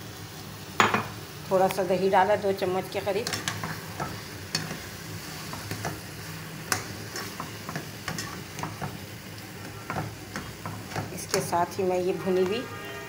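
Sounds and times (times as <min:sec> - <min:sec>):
food sizzling in a pan: 0:00.0 - 0:13.0
spatula scraping a pan: 0:03.2 - 0:09.0.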